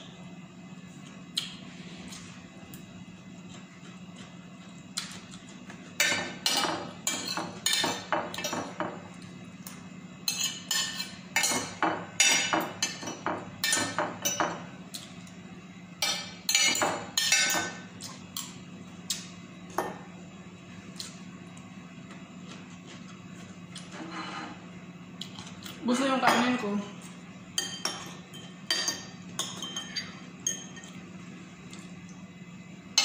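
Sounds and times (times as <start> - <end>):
steady low hum: 0.0 - 33.0
cutlery scraping ceramic plate: 23.8 - 24.6.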